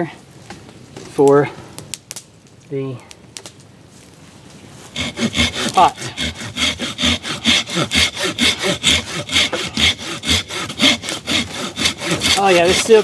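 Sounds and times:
hand saw rasping through wood: 5.0s - 13.0s.

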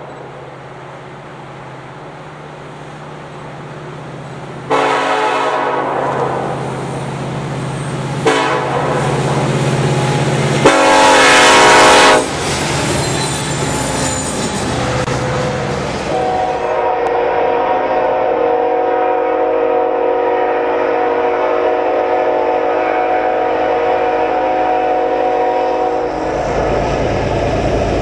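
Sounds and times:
locomotive air horn: 4.7s - 6.7s, 8.2s - 9.4s, 10.6s - 12.4s, 16.1s - 26.8s.

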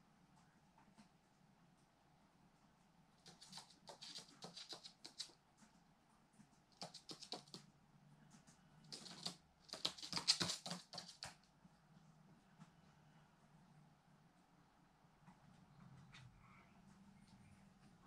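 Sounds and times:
bird claws and beak tapping: 3.2s - 5.8s, 6.4s - 7.7s, 8.3s - 11.5s.

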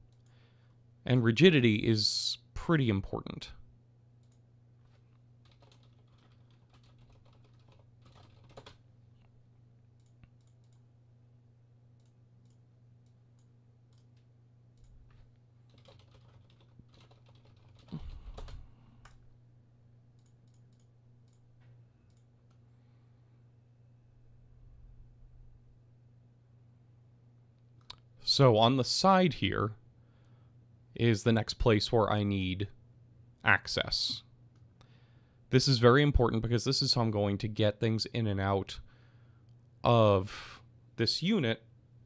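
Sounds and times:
steady low hum: 0.0s - 42.0s
keyboard typing: 4.2s - 8.8s, 13.4s - 19.2s.

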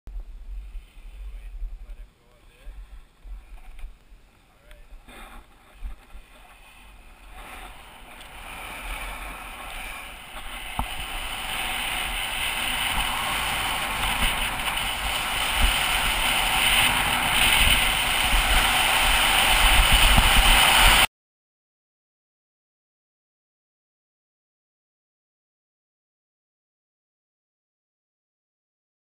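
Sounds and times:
skis hissing over snow: 4.6s - 21.1s
wind buffeting microphone: 4.8s - 21.1s.

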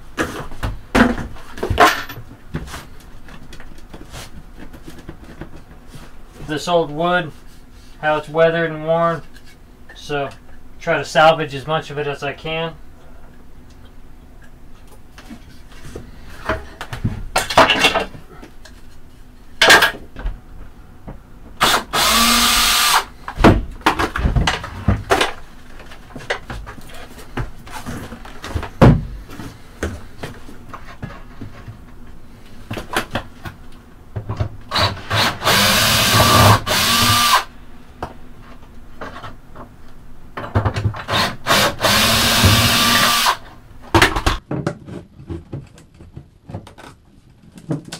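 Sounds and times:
cordless drill motor running: 21.6s - 23.1s, 34.7s - 37.5s, 41.1s - 43.5s.

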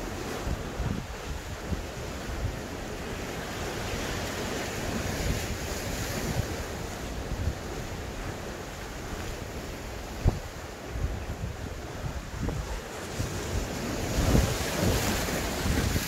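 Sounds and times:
sea surf rushing: 0.0s - 16.0s
wind buffeting microphone: 0.0s - 16.0s.

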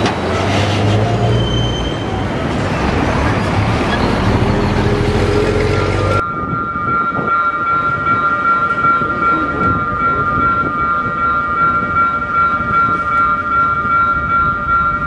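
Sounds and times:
diesel locomotive engine running: 0.0s - 6.3s
freight train rumbling past: 0.0s - 15.0s.

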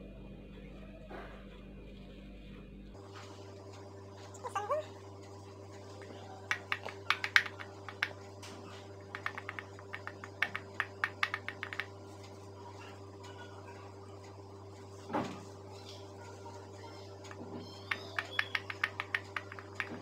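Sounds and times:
steady low hum: 0.0s - 20.0s
fingers tapping silicone mould: 6.5s - 8.2s.

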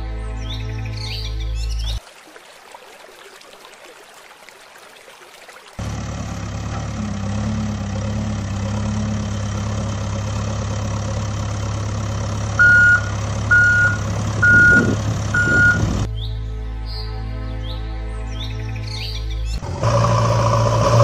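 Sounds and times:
heavy vehicle engine running: 5.8s - 16.1s, 19.6s - 21.0s
reversing beeps: 12.6s - 15.9s.

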